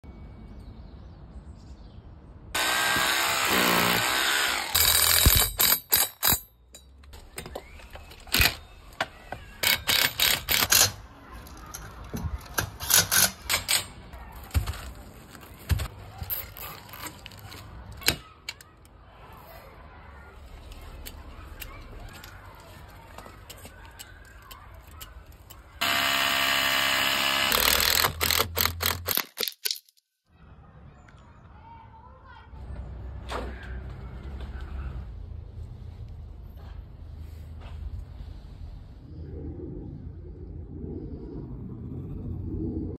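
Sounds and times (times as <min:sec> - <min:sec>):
cordless drill motor: 0:02.6 - 0:05.4, 0:25.8 - 0:29.0.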